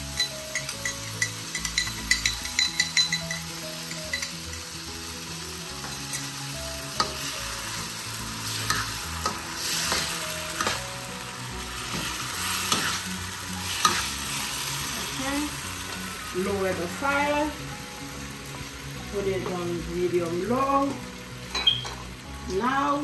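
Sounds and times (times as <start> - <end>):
food sizzling in a wok: 0.0 - 23.0
metal spatula scraping and clinking: 0.2 - 4.6, 8.6 - 10.8, 11.8 - 14.2.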